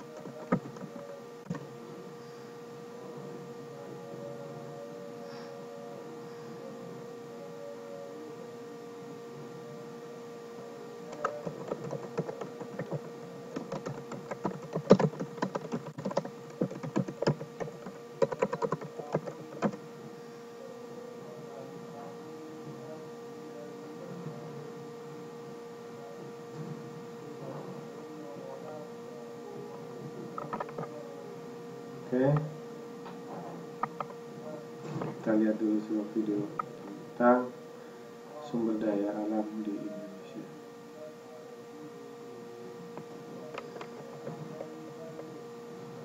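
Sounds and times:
steady hum: 0.0 - 46.0.

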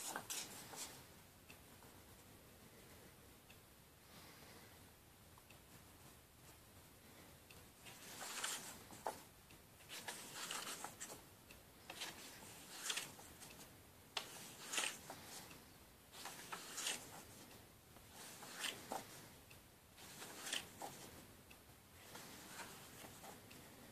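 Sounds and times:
paper pages turning: 0.0 - 1.0, 7.9 - 9.2, 9.8 - 11.2, 11.9 - 15.5, 16.1 - 17.5, 18.1 - 19.1, 20.0 - 21.1, 22.1 - 23.4.

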